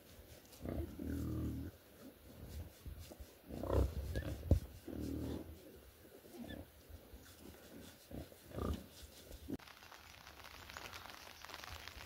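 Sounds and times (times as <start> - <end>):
pigs grunting: 0.6 - 1.8, 3.5 - 5.6, 7.8 - 8.9
steady hiss: 7.2 - 12.0.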